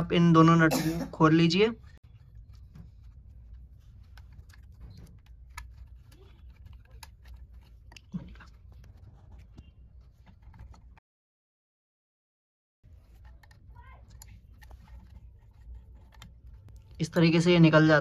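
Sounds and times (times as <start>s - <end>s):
small metallic clicks and scrapes: 1.8s - 11.0s, 12.9s - 17.4s.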